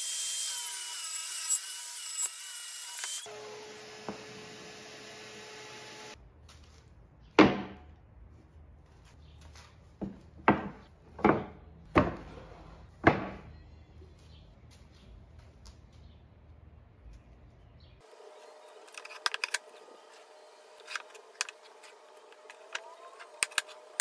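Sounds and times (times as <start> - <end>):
table saw running: 0.0 - 6.2.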